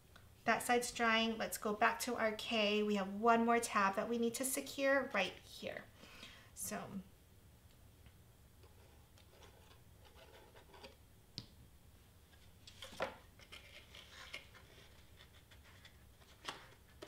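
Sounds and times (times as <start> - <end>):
light paper rustling: 12.4 - 17.0.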